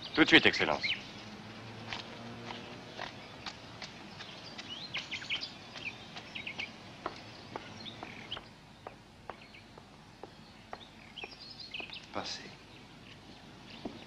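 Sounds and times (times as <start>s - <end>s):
small birds chirping: 0.0s - 14.0s
sharp footsteps: 1.8s - 4.8s.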